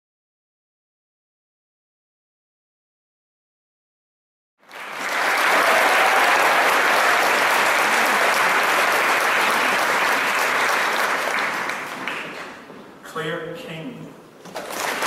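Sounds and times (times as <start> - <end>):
audience applauding: 4.6 - 12.7, 14.5 - 15.0.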